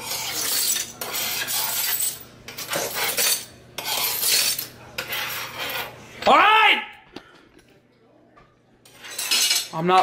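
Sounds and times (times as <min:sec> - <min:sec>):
metal spoon scraping sink: 0:00.0 - 0:06.0, 0:08.8 - 0:10.0.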